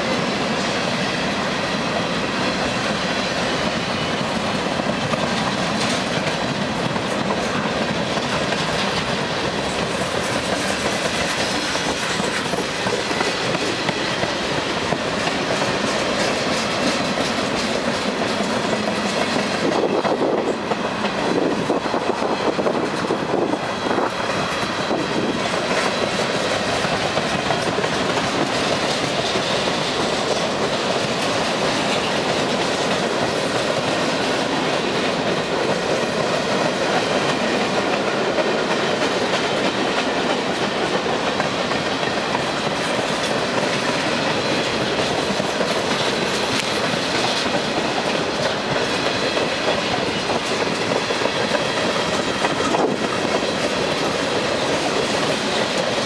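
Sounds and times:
train wheels on rails: 0.0 - 56.0.

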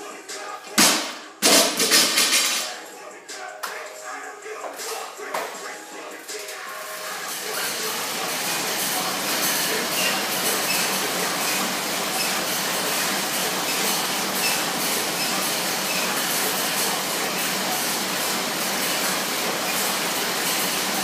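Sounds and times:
air bike fan rushing: 6.3 - 21.0.

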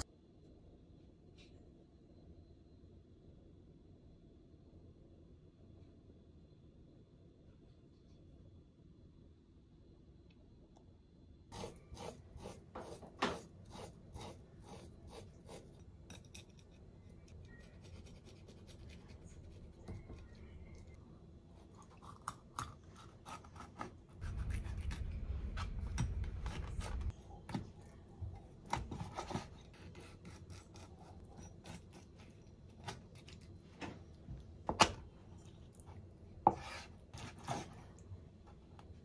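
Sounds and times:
low rumble: 24.2 - 27.3.

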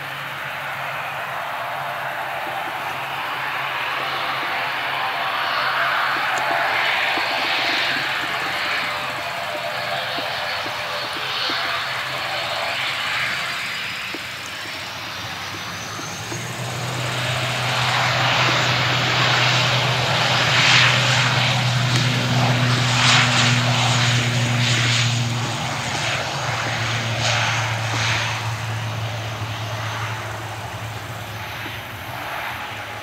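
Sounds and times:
propeller airliner taking off: 0.0 - 33.0.

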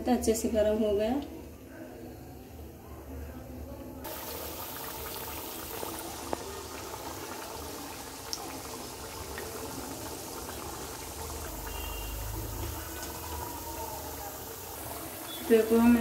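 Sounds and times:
biscuits deep-frying in oil: 4.0 - 16.0.

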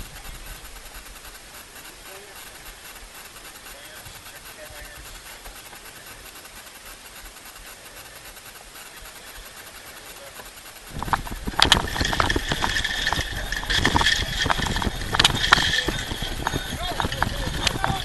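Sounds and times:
wind and water hiss on hull: 0.0 - 18.0.

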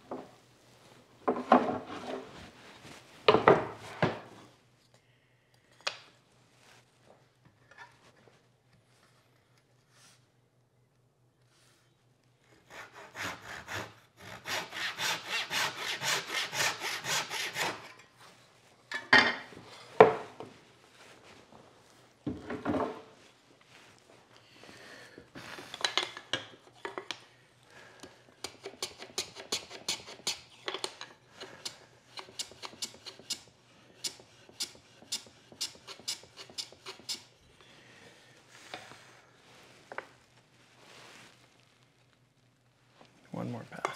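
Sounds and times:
wood knocks and scrapes: 1.2 - 2.5
hand plane strokes on wood: 12.6 - 17.9, 34.0 - 37.3.

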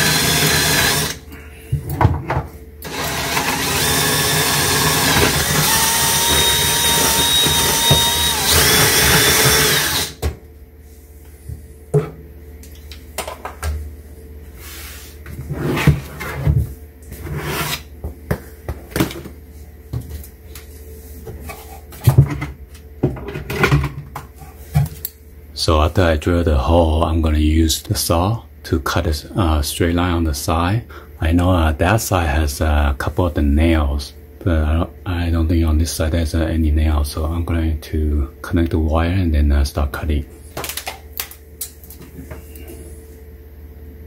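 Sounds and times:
cordless drill whirring: 0.0 - 1.2, 2.8 - 10.2.

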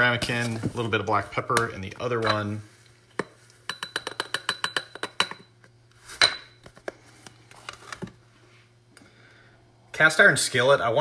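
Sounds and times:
glass clink: 3.7 - 5.5, 6.2 - 6.6.

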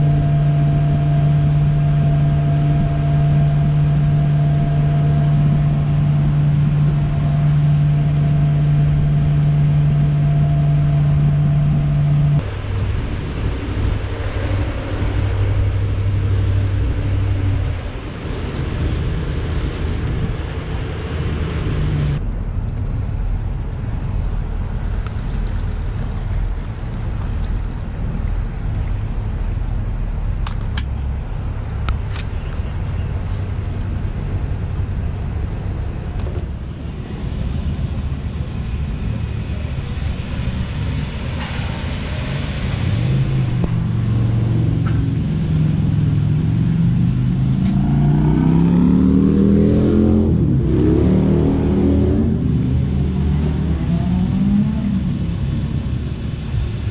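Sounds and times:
boat engine droning: 0.0 - 56.9
hiss: 37.8 - 44.4, 55.2 - 56.9.

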